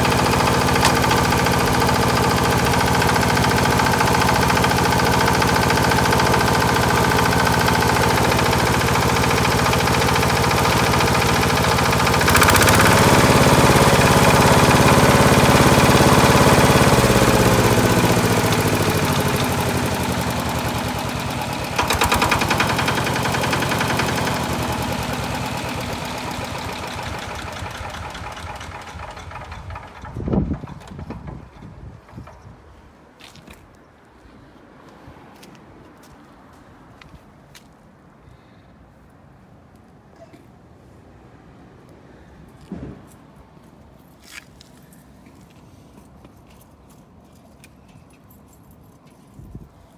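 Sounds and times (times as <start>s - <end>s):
tiller diesel engine running: 0.0s - 32.6s.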